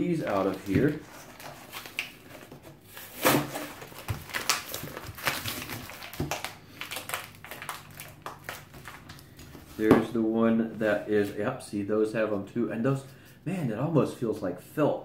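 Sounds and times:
plastic packaging crinkling: 0:00.0 - 0:09.9.

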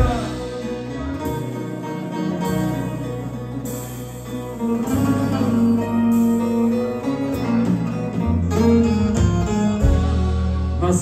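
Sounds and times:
bass line: 0:00.0 - 0:11.0
keyboard and electric guitar: 0:00.0 - 0:11.0.

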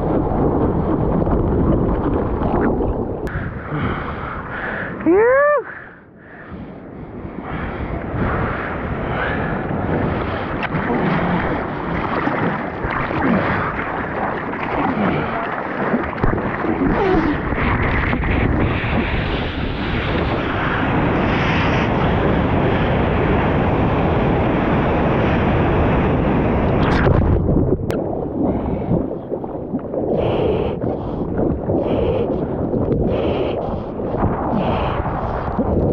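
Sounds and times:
water rushing and splashing: 0:00.0 - 0:03.7, 0:09.3 - 0:23.3
wind noise on microphone: 0:00.0 - 0:35.9.

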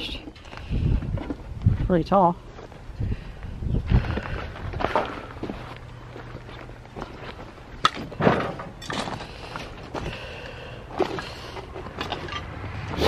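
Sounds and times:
footsteps crunching on gravel: 0:00.5 - 0:08.2.

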